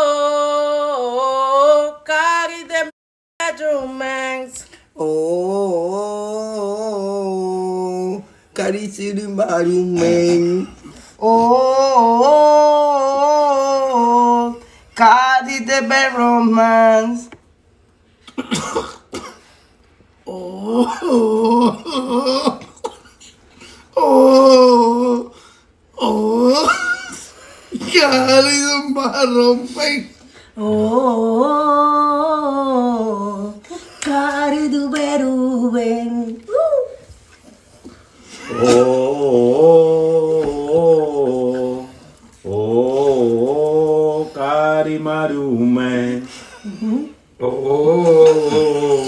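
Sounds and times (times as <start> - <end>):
wordless singing: 0.0 - 17.4, 27.8 - 49.0.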